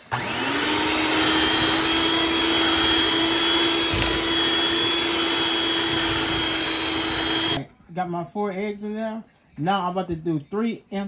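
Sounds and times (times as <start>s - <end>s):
electric hand mixer running: 0.0s - 7.6s.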